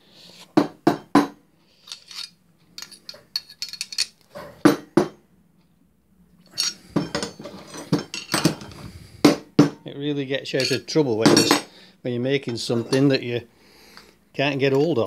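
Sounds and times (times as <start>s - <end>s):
steel bars clinking together: 1.8s - 4.2s, 6.5s - 8.7s, 10.6s - 11.7s.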